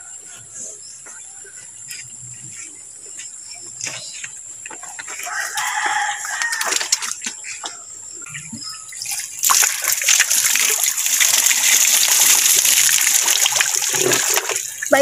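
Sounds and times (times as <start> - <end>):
rooster crowing: 5.2 - 7.0.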